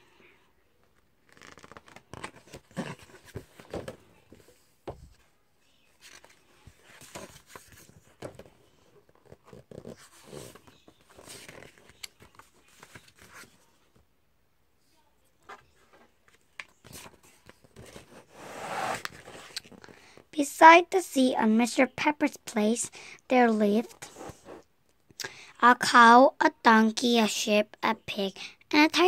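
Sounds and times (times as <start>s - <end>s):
book pages rustling: 1.2s - 5.2s, 6.0s - 13.8s, 15.5s - 19.9s.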